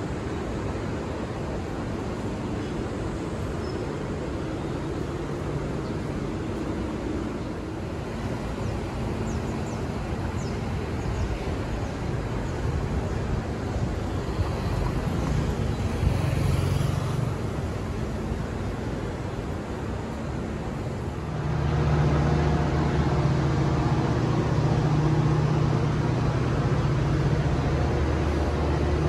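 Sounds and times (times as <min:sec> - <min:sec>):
city street traffic: 0:00.0 - 0:29.0
vehicle passing close: 0:21.1 - 0:29.0.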